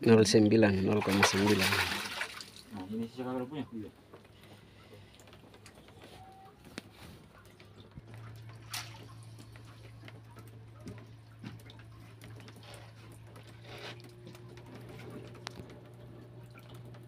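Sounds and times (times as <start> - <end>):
steady low hum: 0.2 - 17.0
water splashing and dripping: 0.9 - 2.7, 7.4 - 14.5, 15.4 - 17.0.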